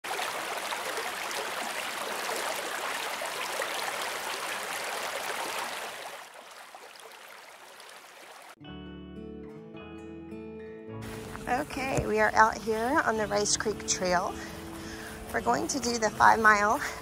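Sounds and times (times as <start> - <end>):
stream water running over cascades: 0.0 - 8.6
music: 8.6 - 17.0.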